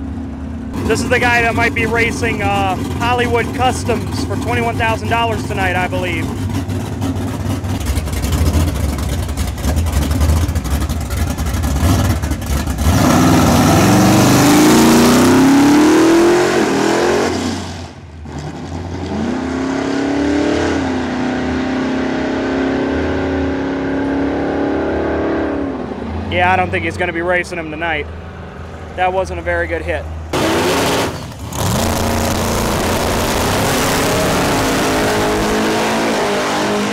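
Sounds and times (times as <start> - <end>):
engine popping and crackling: 0.0 - 15.8, 30.3 - 35.5
race car engine revving: 0.0 - 29.4, 30.1 - 36.9.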